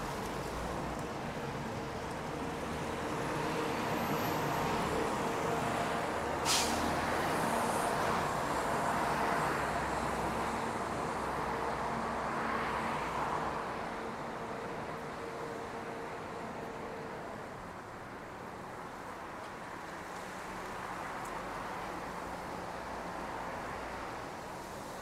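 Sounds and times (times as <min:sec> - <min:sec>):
passing cars: 0:00.0 - 0:25.0
short sharp hiss: 0:06.4 - 0:06.9.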